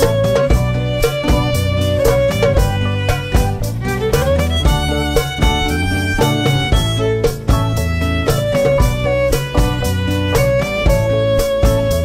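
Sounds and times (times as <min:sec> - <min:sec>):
violin melody over a beat: 0:00.0 - 0:12.0.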